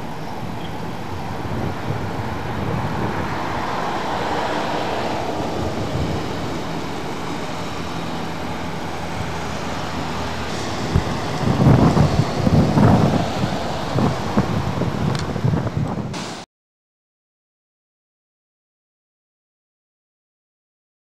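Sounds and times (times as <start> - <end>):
vehicle rumble: 0.0 - 16.4.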